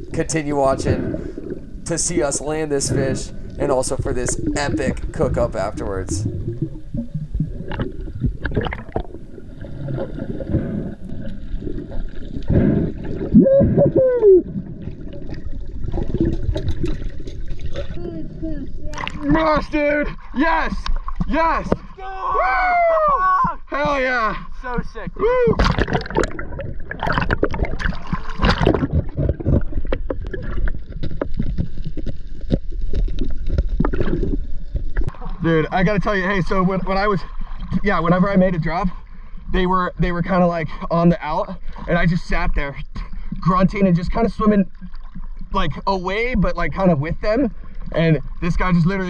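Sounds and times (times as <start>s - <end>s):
underwater gurgling and rush: 0.0s - 22.0s, 24.4s - 49.0s
water sloshing and splashing: 0.0s - 22.1s, 23.5s - 39.5s, 44.4s - 49.0s
underwater clicks: 2.9s - 18.0s, 18.9s - 19.3s, 25.5s - 35.3s
water slaps: 25.5s - 34.2s.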